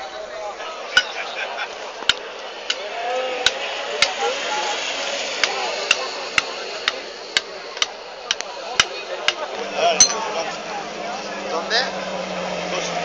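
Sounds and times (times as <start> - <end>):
crowd chatter: 0.0 - 13.0.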